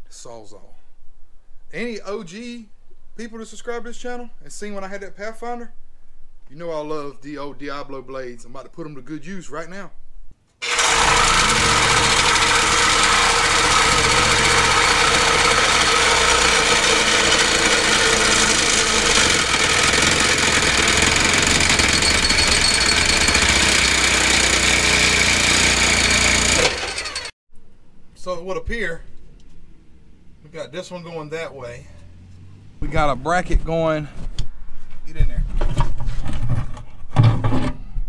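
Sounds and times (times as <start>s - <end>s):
reciprocating saw cutting metal pipe: 10.6s - 27.3s.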